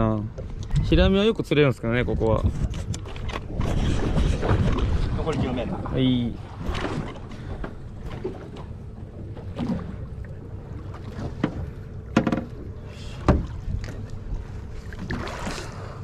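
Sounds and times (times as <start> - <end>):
water noise: 0.0 - 16.0
wind: 0.0 - 16.0.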